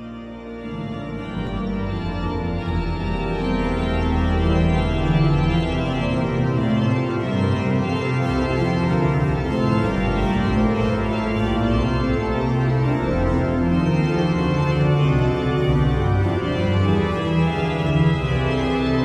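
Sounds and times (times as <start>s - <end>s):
pipe organ chords: 0.0s - 19.0s.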